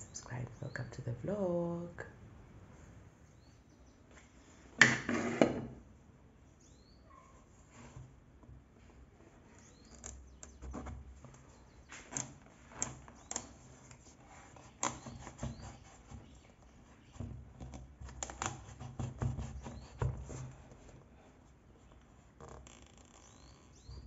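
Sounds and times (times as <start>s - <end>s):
faint bird chirps: 6.6s - 7.4s, 9.5s - 10.7s, 23.1s - 24.0s.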